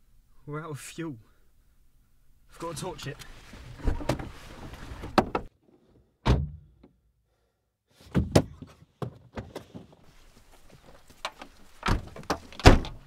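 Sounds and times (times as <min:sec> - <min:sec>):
car doors thumping shut: 0:06.2 - 0:06.6, 0:11.8 - 0:13.0.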